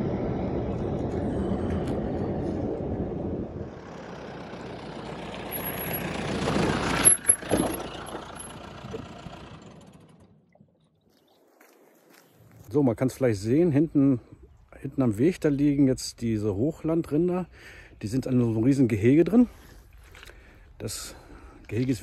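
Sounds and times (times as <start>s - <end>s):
vehicle engine and road noise: 0.0s - 10.8s.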